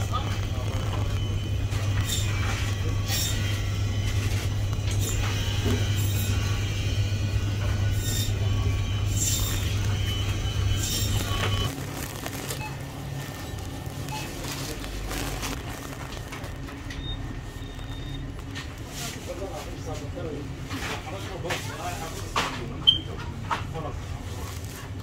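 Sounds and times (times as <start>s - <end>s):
faint voices: 0.0s - 11.7s, 13.3s - 17.6s
low hum: 0.0s - 18.9s.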